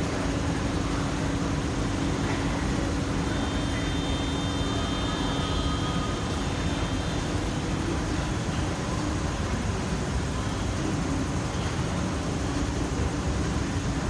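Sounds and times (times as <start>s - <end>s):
faint high whine: 0.0s - 14.0s
ventilation air rushing: 0.0s - 14.0s.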